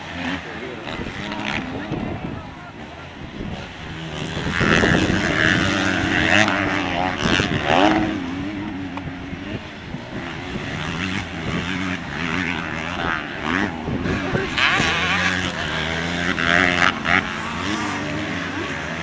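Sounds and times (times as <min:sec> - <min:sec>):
motocross bike engines revving: 0:00.0 - 0:19.0.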